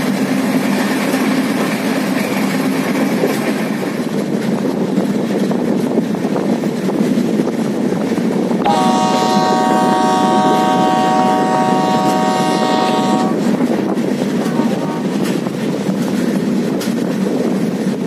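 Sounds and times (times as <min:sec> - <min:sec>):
train coaches rumbling on track: 0:00.0 - 0:18.0
locomotive horn blast: 0:08.6 - 0:15.5.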